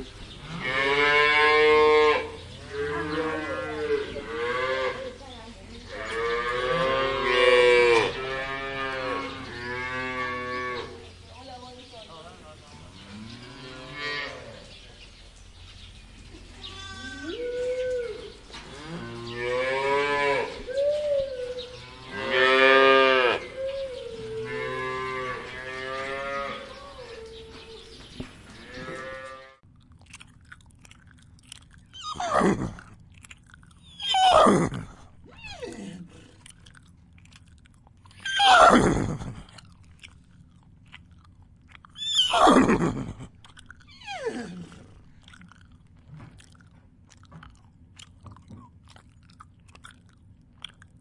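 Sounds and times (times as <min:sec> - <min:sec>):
cows mooing: 0:00.4 - 0:05.2, 0:05.9 - 0:11.1, 0:13.0 - 0:14.7, 0:16.6 - 0:27.8, 0:28.5 - 0:29.6.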